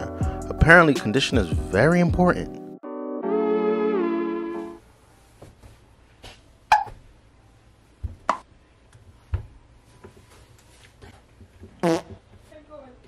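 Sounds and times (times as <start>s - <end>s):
synth background music: 0.0s - 4.8s.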